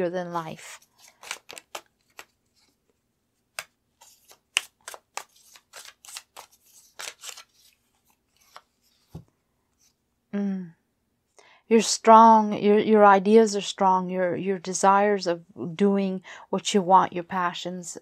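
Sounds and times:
cards snapping and flicking: 0:01.0 - 0:02.4, 0:03.5 - 0:07.8.

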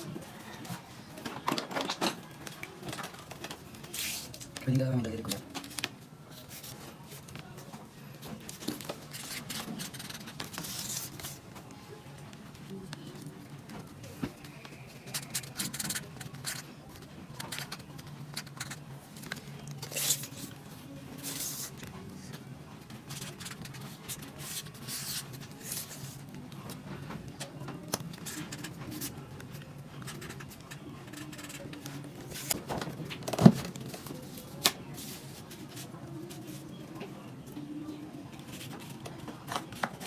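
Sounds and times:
knocks and rustles of handling: 0:00.1 - 0:14.8
marker scratching on cardboard: 0:15.1 - 0:16.6, 0:31.0 - 0:31.7.

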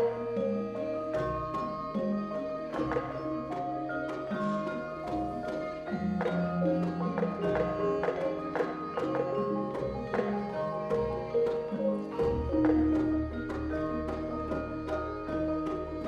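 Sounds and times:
gamelan music: 0:00.0 - 0:16.0.

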